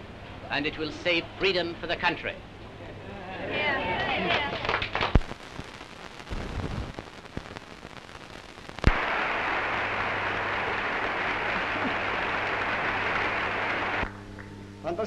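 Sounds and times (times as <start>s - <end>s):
mains hum: 0.0s - 15.0s
audience applauding: 3.5s - 5.3s, 8.9s - 14.5s.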